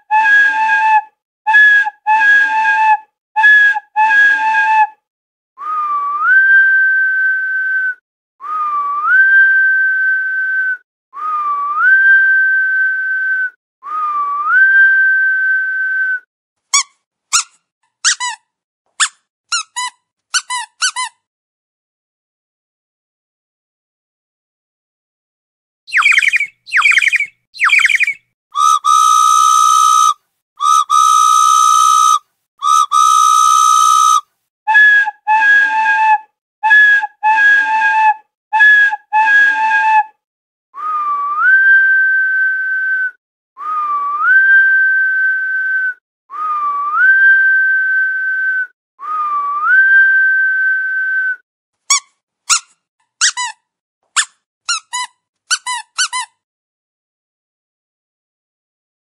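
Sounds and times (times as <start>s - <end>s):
quick whistle chirps: 25.9s - 34.8s.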